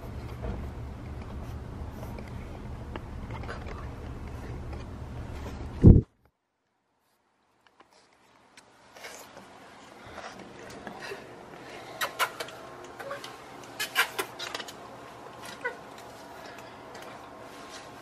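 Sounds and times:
puppy whimpering: 12.0s - 14.4s, 15.4s - 15.9s.

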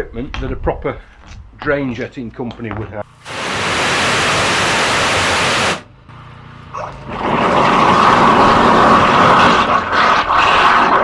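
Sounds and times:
pressure washer jet hissing: 3.2s - 5.8s
water rushing through pipe: 3.3s - 5.8s, 7.1s - 11.0s.

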